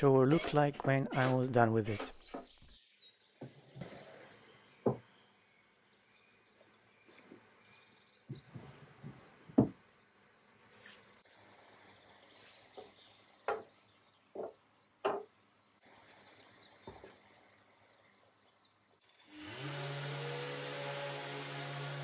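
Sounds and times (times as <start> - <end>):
wooden knocks: 4.8 - 5.0, 8.3 - 9.8, 13.5 - 13.7, 14.3 - 15.4
orbital sander running: 19.2 - 22.0
dust extractor running: 19.3 - 22.0.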